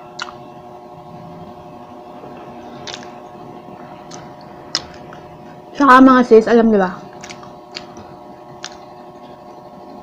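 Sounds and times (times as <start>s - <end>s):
steady background hum: 0.0s - 10.0s
fork clicking while eating: 0.2s - 0.4s, 7.2s - 8.9s.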